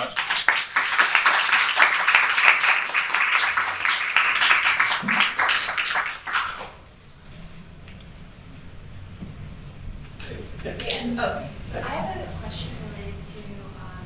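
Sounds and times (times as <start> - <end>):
audience applauding: 0.0 - 6.8.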